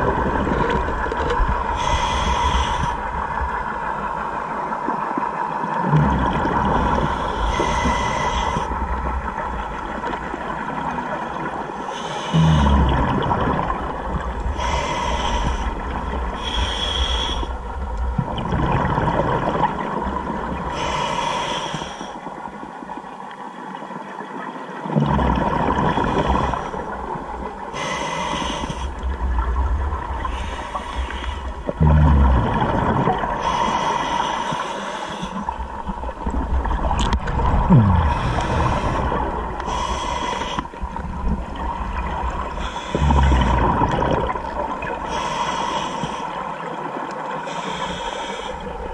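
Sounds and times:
exhaled air bubbling: 0.0s - 22.6s, 24.8s - 48.9s
regulator inhalation hiss: 1.8s - 3.0s, 6.9s - 8.7s, 14.6s - 15.7s, 16.4s - 17.5s, 20.8s - 22.1s, 27.8s - 28.9s, 33.4s - 35.6s, 38.2s - 40.7s, 45.1s - 46.4s, 47.5s - 48.7s.

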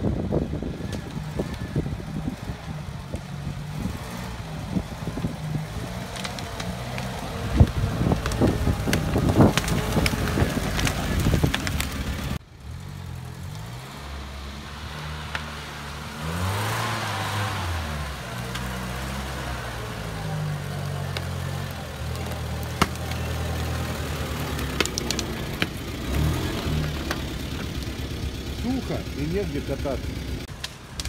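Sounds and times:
wind on microphone: 0.0s - 6.5s, 7.1s - 12.4s
car engine running and revving: 0.0s - 31.0s.

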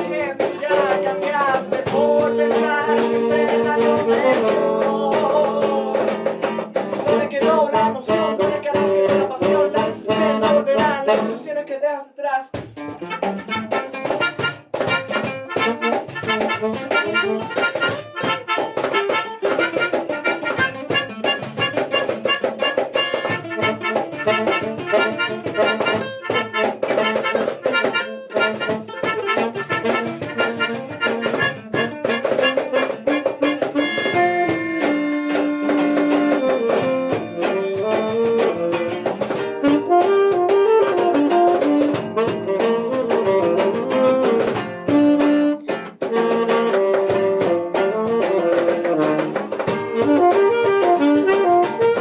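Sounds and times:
saxophone: 0.0s - 11.5s, 12.8s - 52.0s
acoustic guitar: 0.0s - 11.7s, 12.4s - 52.0s
melodica melody: 12.9s - 52.0s.

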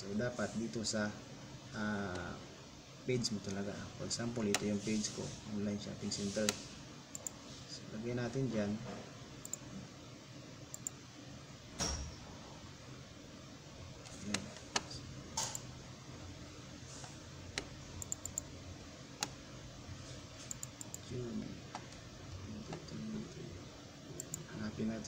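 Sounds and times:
computer mouse clicks: 4.5s - 4.7s, 6.4s - 7.4s, 9.4s - 9.6s, 10.7s - 11.0s, 14.0s - 15.7s, 17.5s - 18.5s, 20.4s - 21.1s, 24.2s - 24.5s.

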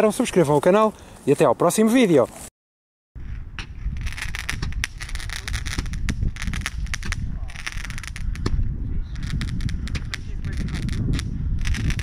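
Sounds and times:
firework stars crackling: 3.8s - 12.0s.

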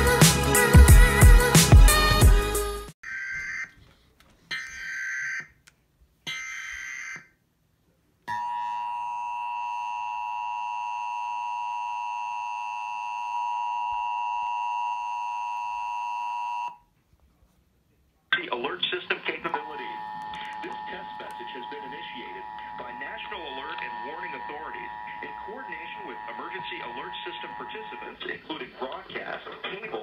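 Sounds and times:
two-tone alert signal: 19.6s - 28.2s
buzzy data bursts: 19.6s - 28.4s.

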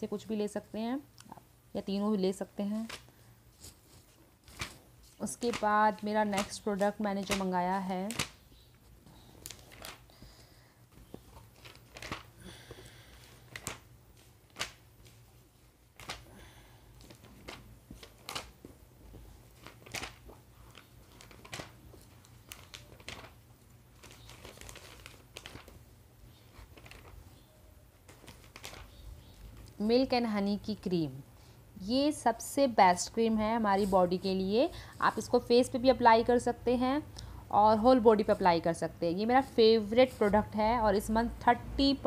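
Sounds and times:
paper pages rustling: 2.6s - 10.1s, 10.9s - 12.3s, 13.1s - 16.3s, 17.0s - 29.8s.

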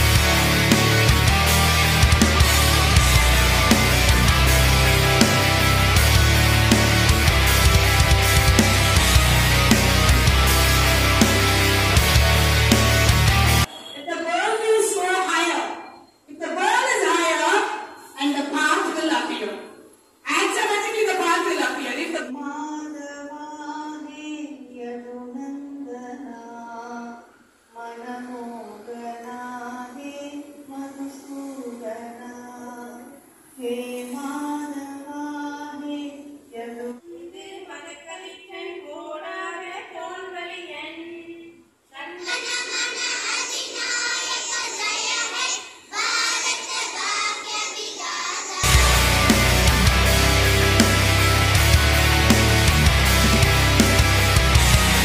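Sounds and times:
loud music with heavy bass: 0.0s - 13.7s, 48.6s - 55.0s
children singing together: 42.2s - 50.5s.

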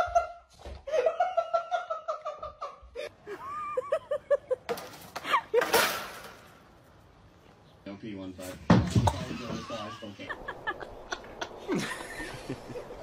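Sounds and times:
person laughing: 0.0s - 5.7s, 9.1s - 13.0s.

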